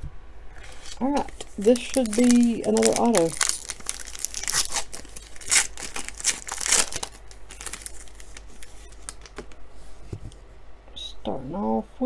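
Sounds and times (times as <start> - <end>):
foil wrapper tearing and crinkling: 0.6 - 9.5.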